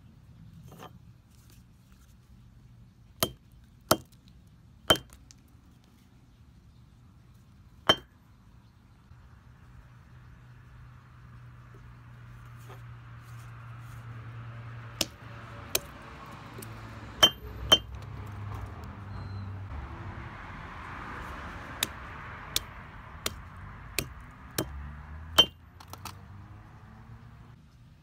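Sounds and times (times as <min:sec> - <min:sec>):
hammer striking stone paving: 0:03.2 - 0:04.2, 0:04.9 - 0:05.2, 0:17.2 - 0:18.0, 0:25.4 - 0:25.6.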